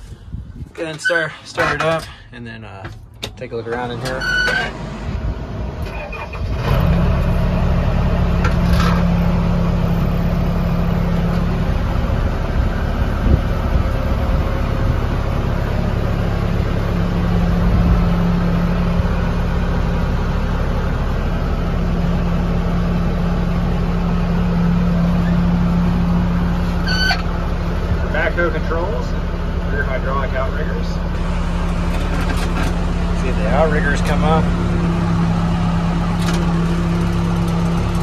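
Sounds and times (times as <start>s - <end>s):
diesel engine running: 0.0s - 38.0s
diesel engine starter cranking: 0.8s - 2.3s, 2.9s - 7.2s.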